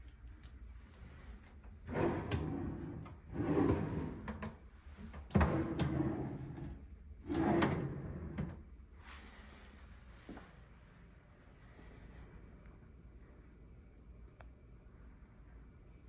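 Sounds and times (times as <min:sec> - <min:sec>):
drawers sliding open and shut: 0:01.8 - 0:08.6.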